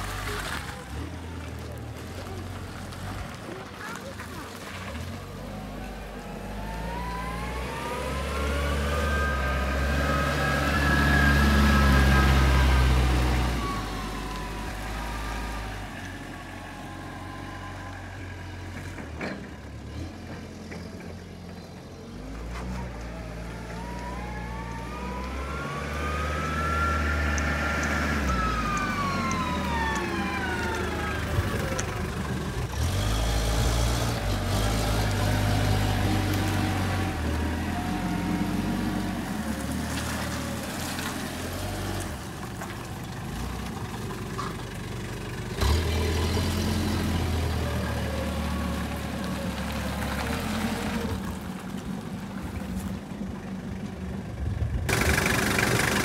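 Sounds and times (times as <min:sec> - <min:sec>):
forklift engine running: 0:05.0 - 0:56.0
engine whine rising and falling: 0:05.6 - 0:18.1, 0:22.8 - 0:39.7.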